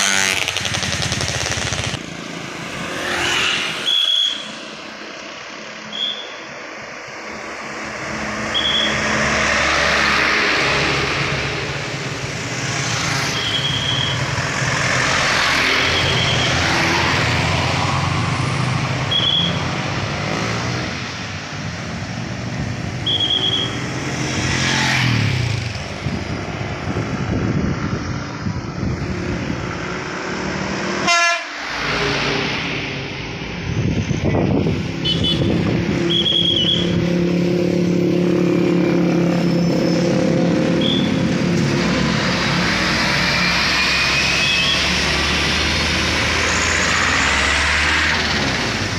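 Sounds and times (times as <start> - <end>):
cars and truck driving past: 0.0 - 48.9
whistle blasts: 3.8 - 4.6, 5.9 - 6.4, 8.5 - 9.0, 13.4 - 14.3, 15.8 - 16.6, 19.1 - 19.6, 23.0 - 23.9, 36.1 - 37.0, 40.8 - 41.2, 43.8 - 44.9.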